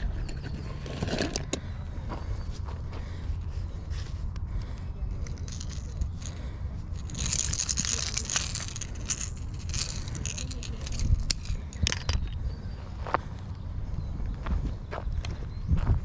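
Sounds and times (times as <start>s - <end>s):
steady low rumble: 0.0s - 16.0s
crackly rustling: 3.9s - 12.5s.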